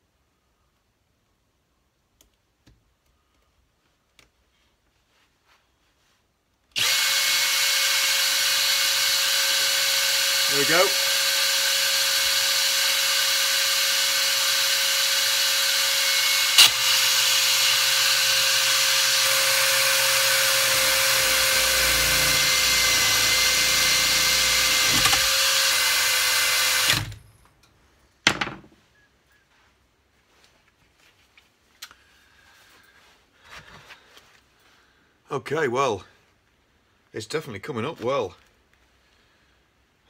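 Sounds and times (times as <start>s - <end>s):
drill whining: 6.7s - 27.4s.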